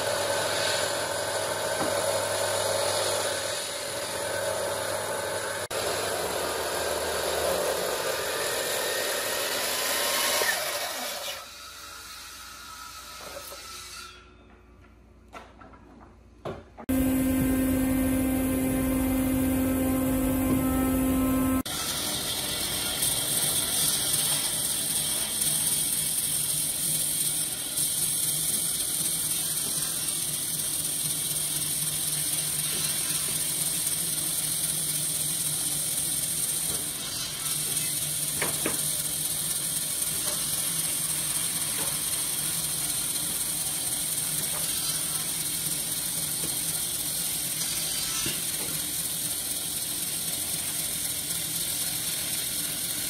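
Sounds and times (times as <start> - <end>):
bandsaw blade cutting wood: 0.0 - 12.1
machine hum: 16.9 - 22.8.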